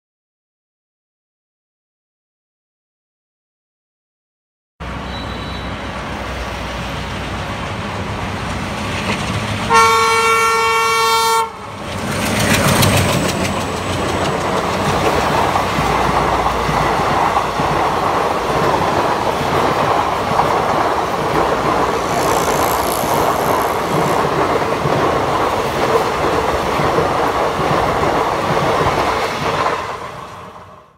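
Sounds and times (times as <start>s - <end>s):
diesel locomotive rumble: 4.8s - 30.8s
wheels rumbling on rail: 4.8s - 30.9s
locomotive air horn blast: 9.7s - 11.7s.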